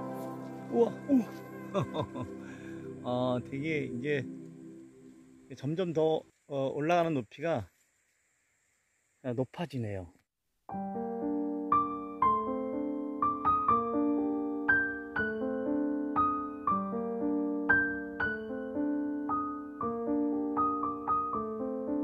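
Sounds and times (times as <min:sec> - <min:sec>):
gentle piano music: 0:00.0 - 0:06.2, 0:10.7 - 0:22.0.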